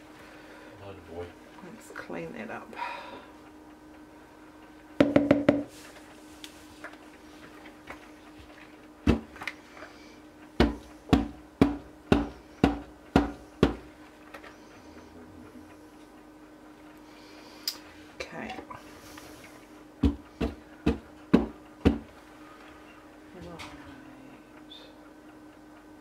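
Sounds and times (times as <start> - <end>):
spatula knocking plastic bowl: 5.0 - 5.7, 10.6 - 13.8, 20.0 - 22.0.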